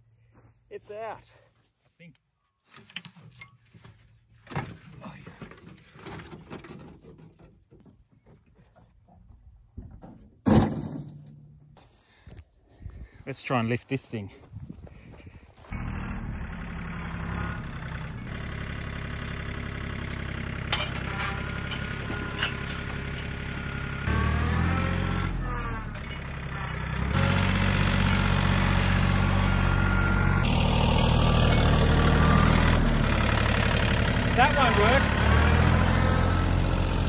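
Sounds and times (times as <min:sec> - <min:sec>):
tractor diesel engine running: 0:12.8 - 0:37.0.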